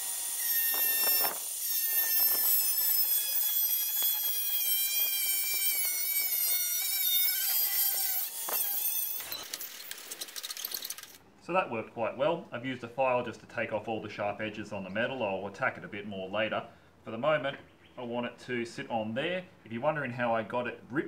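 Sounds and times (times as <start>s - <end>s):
angle grinder cutting steel: 0.0s - 11.2s.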